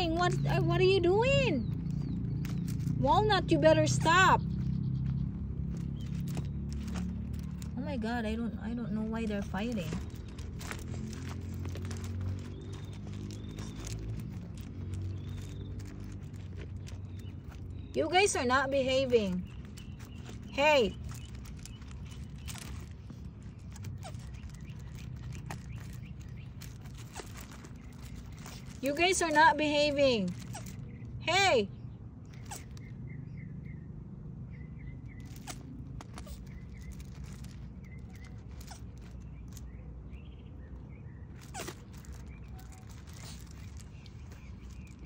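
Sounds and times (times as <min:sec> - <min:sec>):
tortoise shells knocking and scraping: 0:00.0 - 0:08.1, 0:08.8 - 0:31.2.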